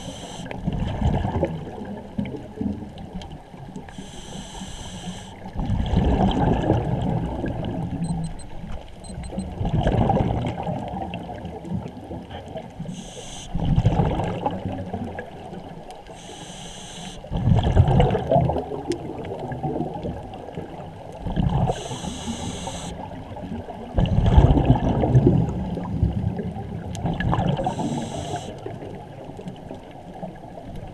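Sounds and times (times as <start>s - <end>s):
regulator inhale hiss: 0.0s - 0.6s, 3.9s - 5.4s, 12.8s - 13.6s, 16.1s - 17.3s, 21.7s - 23.0s, 27.6s - 28.7s
exhaled bubbles underwater: 0.0s - 8.2s, 9.3s - 16.4s, 17.2s - 30.9s.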